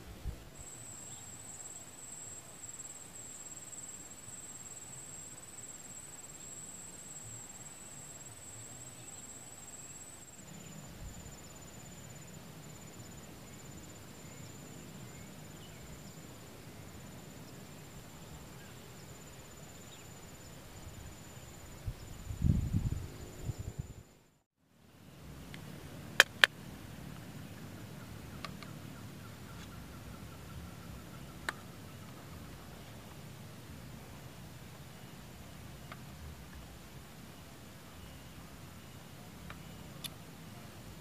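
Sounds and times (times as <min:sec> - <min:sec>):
background hiss: 0:00.0 - 0:41.0
insects chirring: 0:00.5 - 0:24.3.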